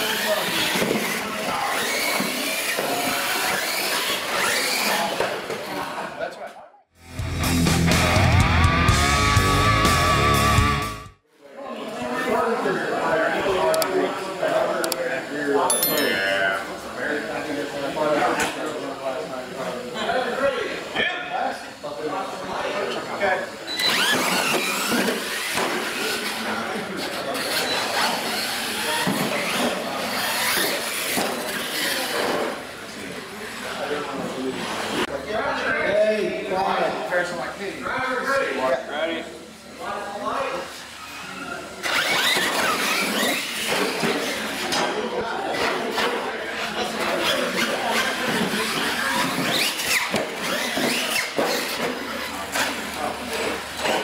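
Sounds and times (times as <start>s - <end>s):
electric motors whining: 23.7s - 32.6s.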